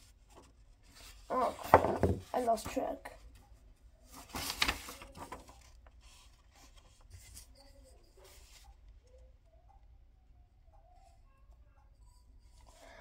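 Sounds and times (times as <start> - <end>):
paper rustling: 4.0 - 8.8.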